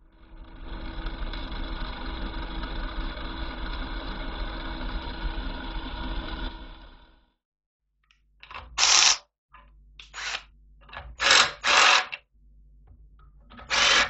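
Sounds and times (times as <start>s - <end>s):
drill cutting steel: 8.4s - 9.2s, 10.0s - 10.5s, 11.1s - 12.2s, 13.6s - 14.0s.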